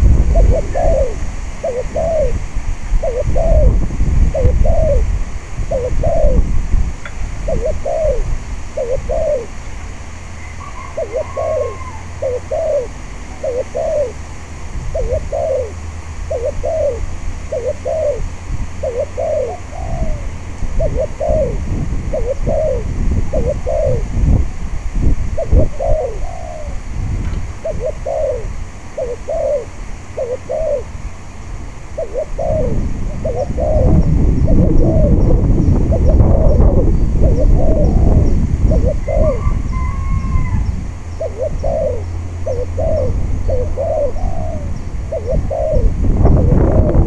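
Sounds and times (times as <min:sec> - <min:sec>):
dove cooing: 0:00.0 - 0:24.4, 0:25.4 - 0:47.0
wind rumble on microphone: 0:00.0 - 0:47.0.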